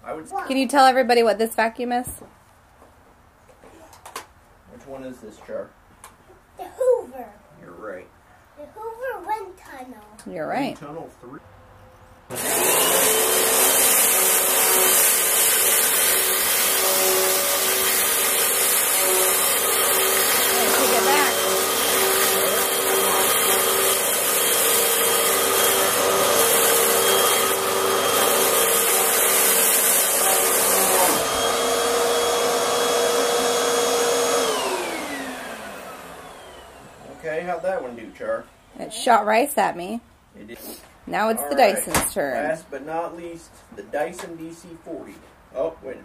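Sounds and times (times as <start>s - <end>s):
upright vacuum cleaner running: 12.3s - 38.0s.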